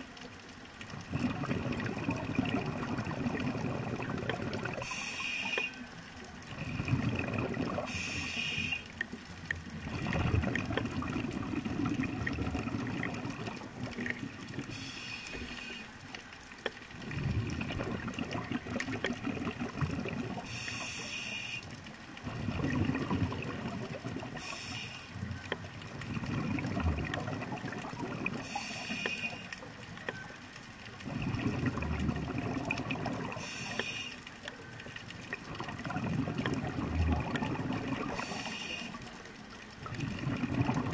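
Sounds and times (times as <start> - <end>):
bubbling exhale underwater: 0.9 - 5.8, 6.5 - 8.9, 9.8 - 15.9, 16.9 - 21.5, 22.2 - 29.4, 30.9 - 34.0, 35.0 - 39.1, 39.8 - 40.9
regulator inhale hiss: 4.8 - 6.0, 7.8 - 9.0, 14.6 - 16.1, 20.4 - 21.8, 24.4 - 25.3, 28.4 - 29.6, 33.3 - 34.4, 38.1 - 39.2.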